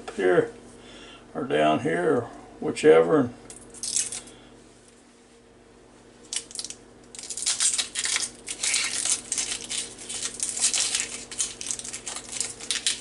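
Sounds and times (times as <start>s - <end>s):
onion skin crackling: 3.7s - 4.4s, 6.2s - 13.0s.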